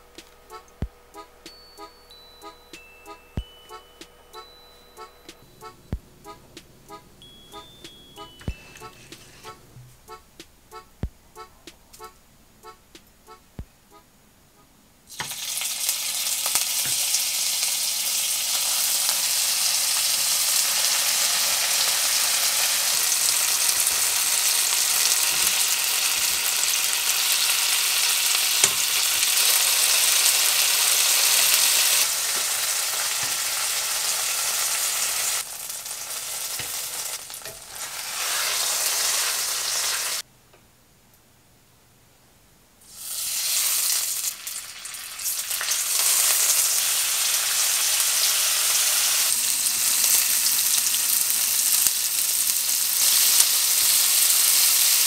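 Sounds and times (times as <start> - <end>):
food sizzling in oil: 15.1 - 40.2, 42.8 - 55.0.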